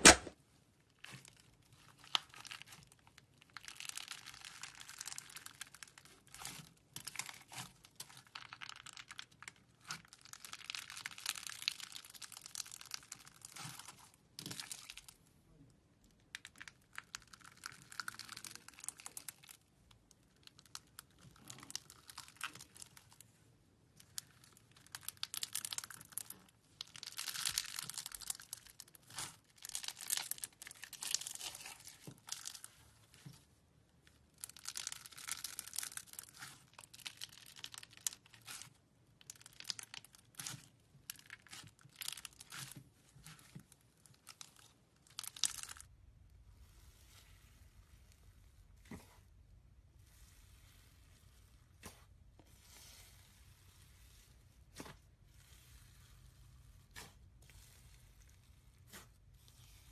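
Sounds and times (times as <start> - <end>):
slime crackling and popping: 0.0 - 15.3, 16.0 - 23.3, 23.9 - 33.3, 34.0 - 59.9.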